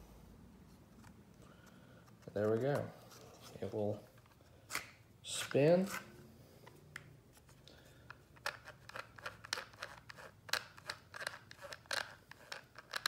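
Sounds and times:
plastic gears clicking and grinding: 8.4s - 13.0s.

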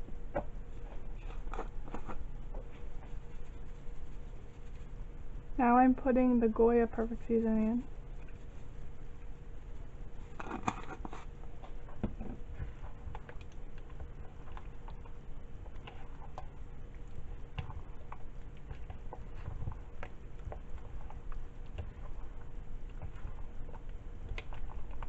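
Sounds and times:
spatula stirring wet mixture: 0.1s - 25.0s
spatula scraping bowl: 12.7s - 25.0s.

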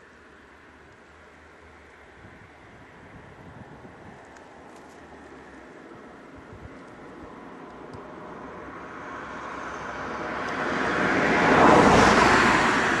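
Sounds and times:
vehicle approaching rushing noise: 8.2s - 13.0s.

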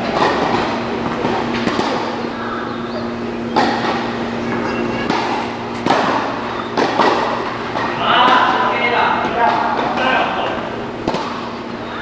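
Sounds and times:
steady low hum: 0.0s - 12.0s
tennis ball knocks: 5.0s - 8.6s, 11.0s - 11.5s.

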